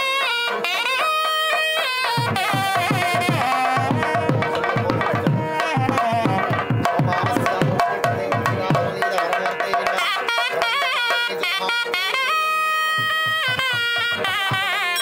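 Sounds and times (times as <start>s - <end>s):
reedy wind melody: 0.0s - 8.8s, 9.6s - 15.0s
fast drum strokes: 0.3s - 9.7s.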